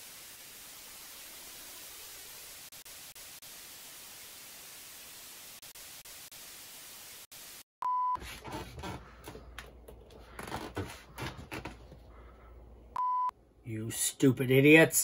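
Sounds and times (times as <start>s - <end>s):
single-pitched beep: 7.8s - 8.2s, 13.0s - 13.3s.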